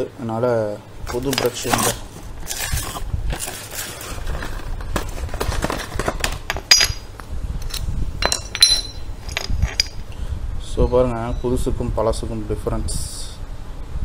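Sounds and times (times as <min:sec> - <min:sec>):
metal brake shoes clinking: 0:06.4 - 0:10.1.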